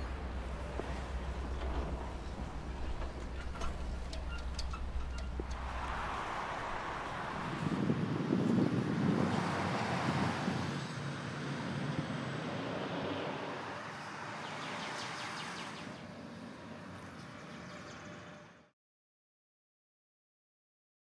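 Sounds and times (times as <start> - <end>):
distant road traffic rumble: 0.0 - 18.6
faint clicks: 0.8 - 5.8.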